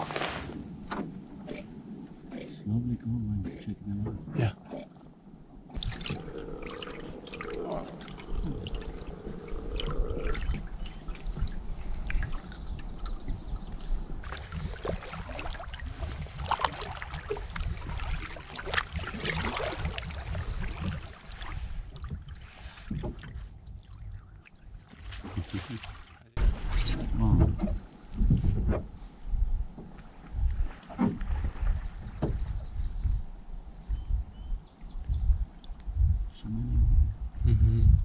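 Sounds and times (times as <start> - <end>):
low rumble: 5.3 - 22.0, 26.3 - 38.0
canoe paddles pulling through water: 5.8 - 24.0
water dripping off paddles: 5.8 - 25.9.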